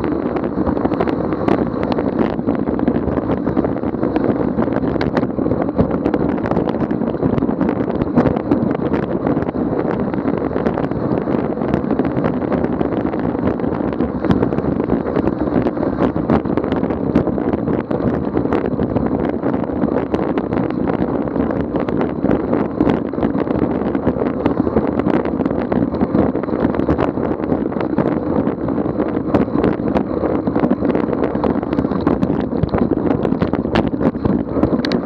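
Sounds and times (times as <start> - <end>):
bike tyres on packed snow: 0.0 - 35.0
wind on microphone: 0.0 - 35.0
small clicks and rattles: 29.2 - 35.0.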